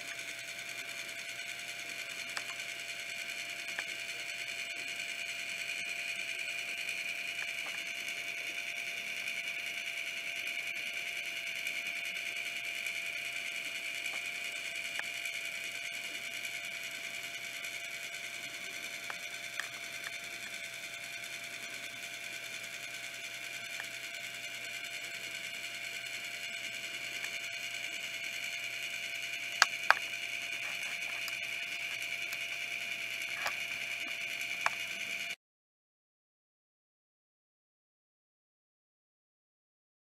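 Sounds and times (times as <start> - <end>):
turntable motor whirring: 0.0 - 35.4
sharp clicks: 26.8 - 35.3.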